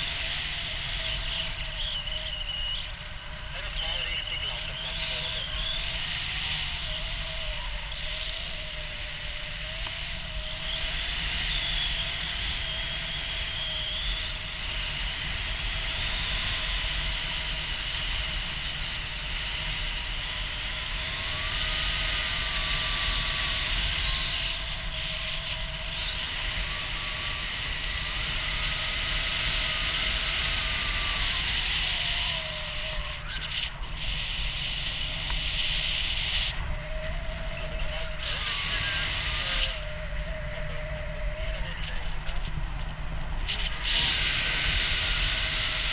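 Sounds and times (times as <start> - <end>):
deep buffeting rumble: 0.0 - 11.1, 30.9 - 45.9
thin wavering whistling tones: 0.0 - 15.1, 19.0 - 45.9
wind rushing over microphone: 0.0 - 45.9.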